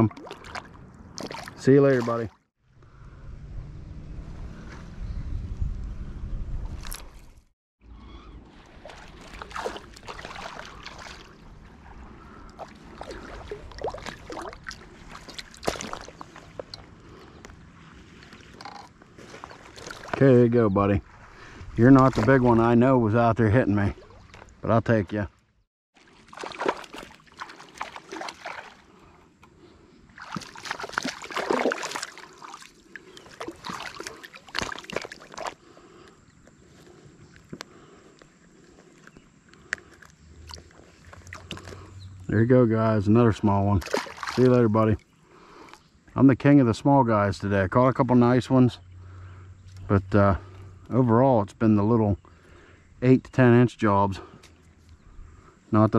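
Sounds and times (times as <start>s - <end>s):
fish splashing in water: 8.4s - 16.7s, 26.0s - 28.9s, 30.2s - 35.6s, 43.8s - 44.6s.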